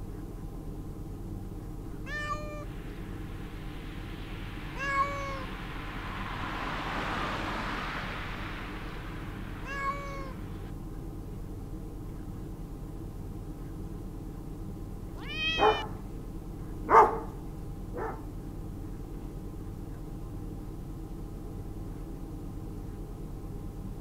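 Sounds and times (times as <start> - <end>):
steady low hum: 0.0 - 24.0
soft hiss: 0.9 - 12.4
cat meowing: 2.0 - 2.7, 4.7 - 5.5, 9.6 - 10.5, 15.2 - 15.9.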